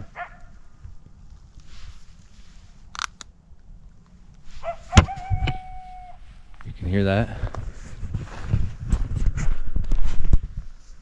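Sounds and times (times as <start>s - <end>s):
coyotes howling: 4.6s - 6.3s.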